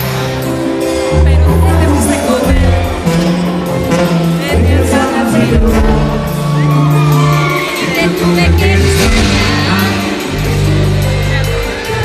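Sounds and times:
man singing: 0.7 - 12.0
tuba holding low notes: 1.1 - 6.6
brass and drums: 1.4 - 12.0
crowd whooping: 6.1 - 10.0.

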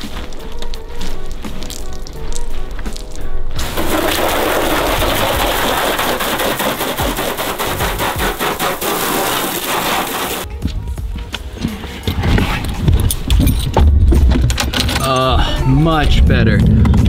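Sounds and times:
water jet spraying onto car: 3.6 - 10.5.

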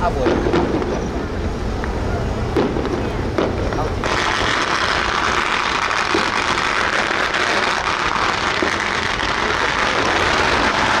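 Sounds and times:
firecrackers crackling: 0.0 - 11.0.

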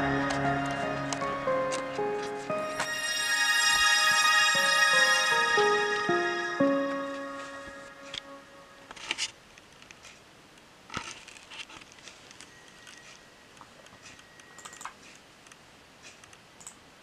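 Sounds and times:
faint high whine: 0.0 - 9.0.

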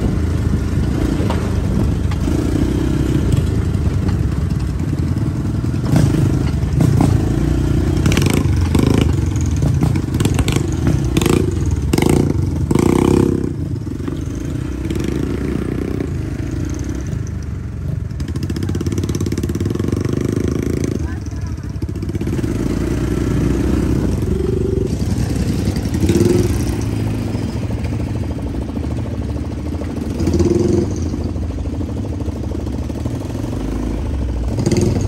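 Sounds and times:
off-road vehicle engine running: 0.0 - 35.0
vehicle knocking and rattling: 3.3 - 15.9.

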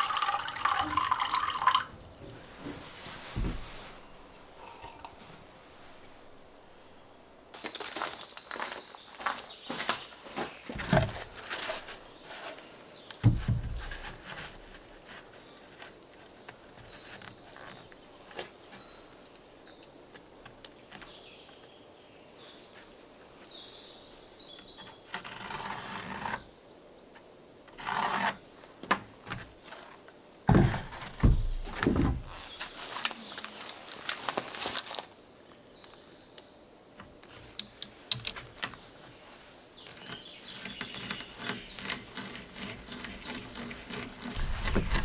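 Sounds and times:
wooden boards dropped on deck: 2.6 - 3.8, 10.7 - 11.9, 13.2 - 14.2, 30.5 - 32.3.

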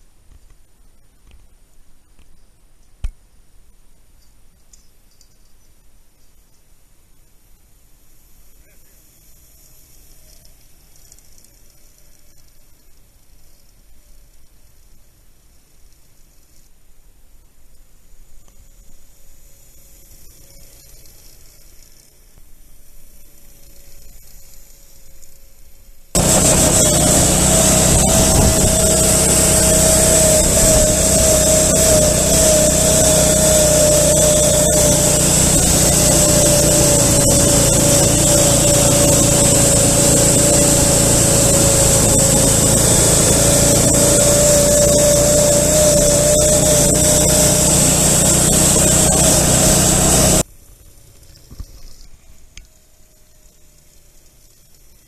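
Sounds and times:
snowmobile engine drone: 26.2 - 50.4
snowmobile track noise: 26.2 - 50.4.

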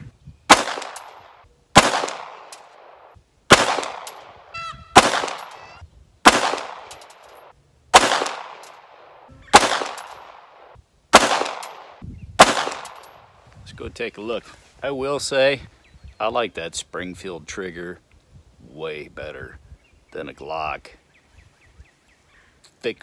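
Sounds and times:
pistol shots with echo: 0.5 - 4.4, 5.0 - 5.6, 6.2 - 7.0, 7.9 - 13.1.

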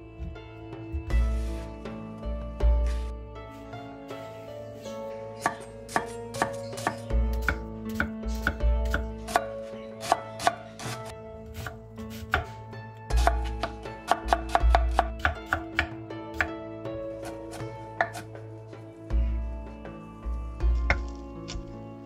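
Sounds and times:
knife chopping on wooden board: 5.4 - 16.5, 17.2 - 18.4.

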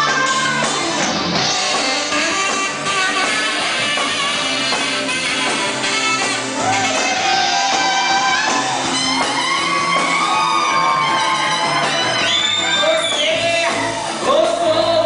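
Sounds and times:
person singing: 0.0 - 1.1, 12.8 - 15.0
live band playing: 0.0 - 15.0.

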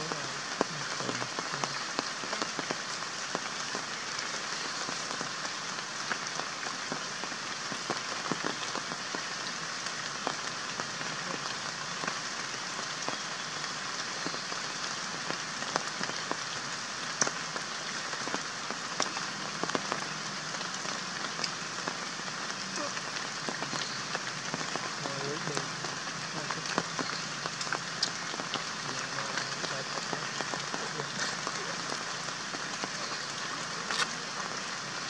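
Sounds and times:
light rain hiss: 0.0 - 35.0
drops pattering on foliage: 26.3 - 34.6.

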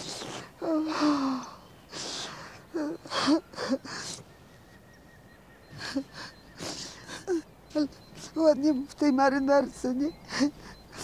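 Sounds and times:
gasping wheezy breaths: 0.0 - 4.3, 5.7 - 7.4
woman sobbing: 0.6 - 1.6, 2.4 - 4.2, 5.6 - 11.0.

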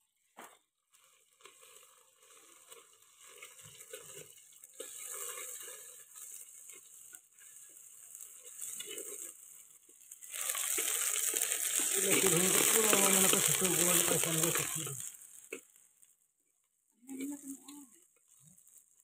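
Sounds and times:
food sizzling in hot oil: 0.0 - 16.4, 17.0 - 19.0
metal spatula scraping and tapping: 1.4 - 10.1.

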